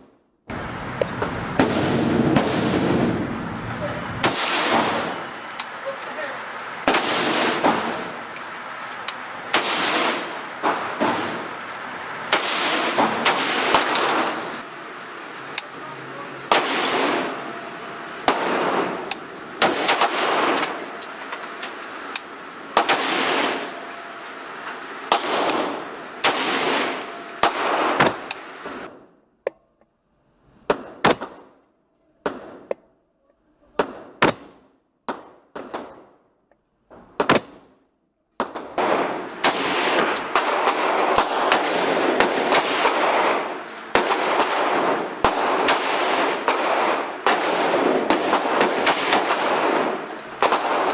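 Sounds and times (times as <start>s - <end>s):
rifle shots echoing indoors: 4.2s - 5.2s, 6.8s - 7.9s, 12.3s - 14.5s, 16.5s - 17.5s, 18.2s - 20.9s, 22.8s - 23.6s, 25.1s - 28.2s, 38.4s - 50.9s.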